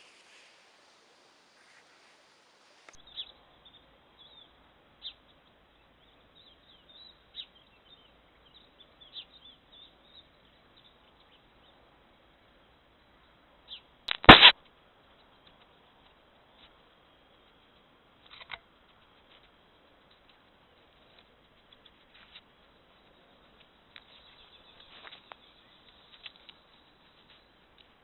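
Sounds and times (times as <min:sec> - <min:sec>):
birds chirping: 0:00.0 - 0:11.8, 0:22.8 - 0:27.5
faint microphone hiss: 0:00.0 - 0:28.0.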